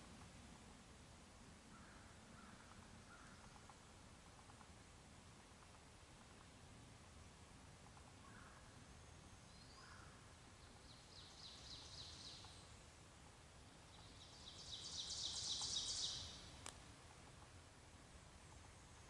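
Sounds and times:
songbird trilling: 13.9s - 16.5s.

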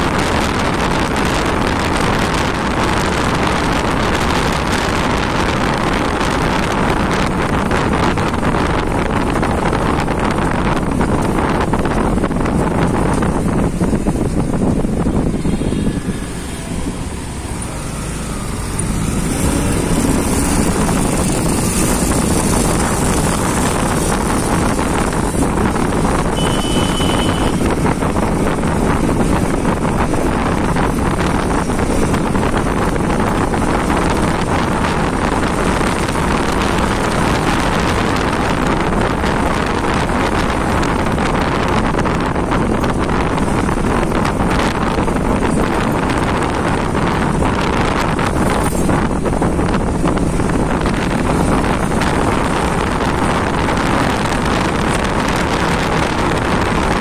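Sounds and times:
wind rushing over microphone: 0.0s - 57.0s
motorcycle engine: 0.1s - 57.0s
short high tone: 26.4s - 27.6s.

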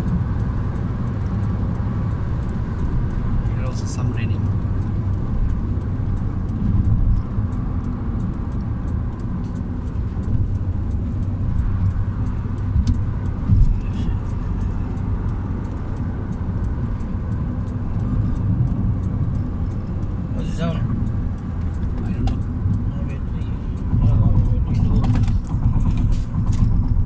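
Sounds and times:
car road and engine noise: 0.0s - 27.0s.

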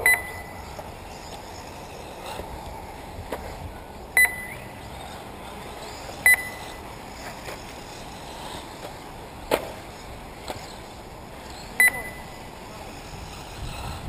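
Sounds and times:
electronic double beep: 0.0s - 0.6s, 4.2s - 4.6s, 6.2s - 6.8s, 11.8s - 12.4s.

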